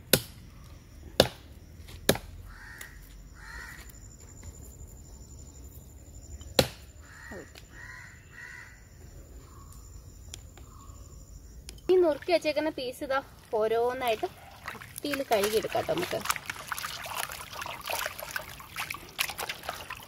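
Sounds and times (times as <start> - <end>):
cleaver chopping meat on wood: 1.2 - 1.4, 2.1 - 2.3
crows cawing: 2.4 - 3.9, 7.0 - 8.9.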